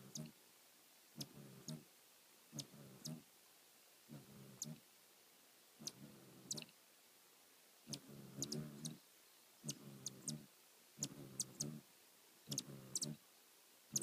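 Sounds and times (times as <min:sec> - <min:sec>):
hummingbird wings humming: 0:00.0 - 0:00.4, 0:01.2 - 0:01.9, 0:02.5 - 0:03.3, 0:04.1 - 0:04.9, 0:05.8 - 0:06.8, 0:07.9 - 0:13.2.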